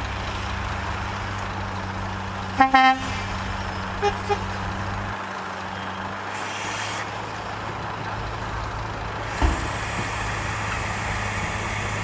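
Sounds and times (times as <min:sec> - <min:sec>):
diesel engine running: 0:00.0 - 0:12.0
air hiss: 0:09.3 - 0:12.0
heavy thump: 0:09.4 - 0:10.2.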